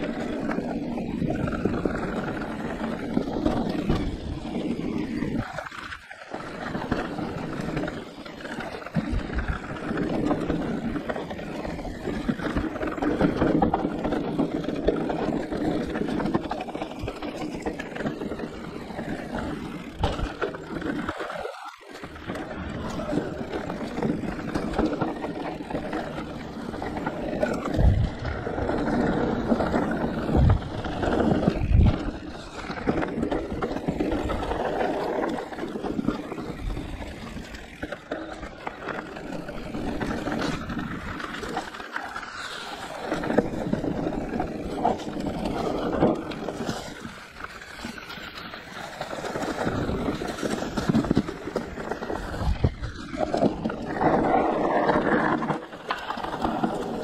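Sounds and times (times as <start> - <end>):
bike tyres rolling on dirt: 0.0 - 57.0
wind rushing over microphone: 27.5 - 37.6, 49.5 - 55.4.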